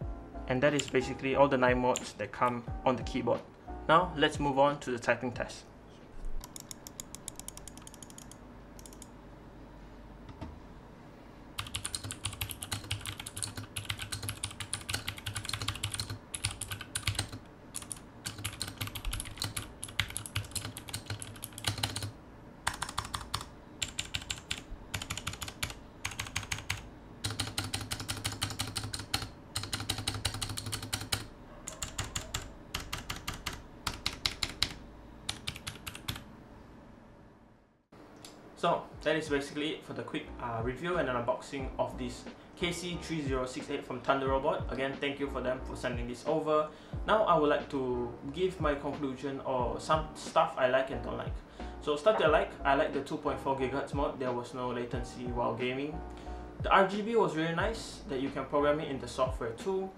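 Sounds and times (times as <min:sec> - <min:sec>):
mechanical keyboard typing: 0:06.4 - 0:09.1, 0:11.6 - 0:36.2.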